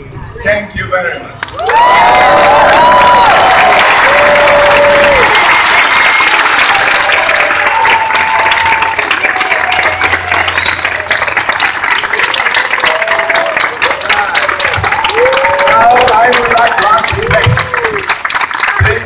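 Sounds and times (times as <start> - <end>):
audience applauding: 1.4 - 19.0.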